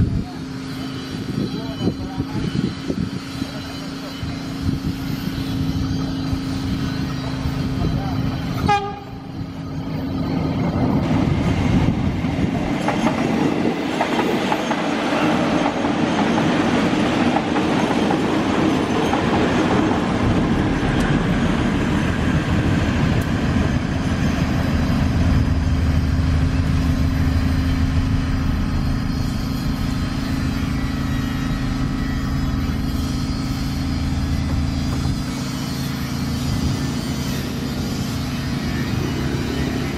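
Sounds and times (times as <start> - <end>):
train wheels rumbling on rails: 0.0 - 39.9
steady tone: 19.9 - 39.9.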